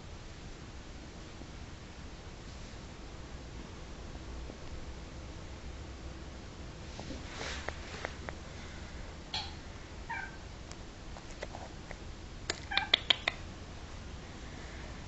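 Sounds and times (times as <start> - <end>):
cat meowing: 10.1 - 10.4, 12.6 - 13.1.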